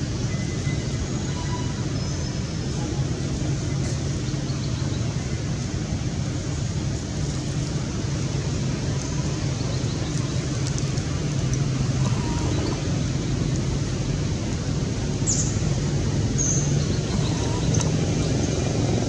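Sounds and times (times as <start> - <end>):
low outdoor rumble with hiss: 0.0 - 19.0.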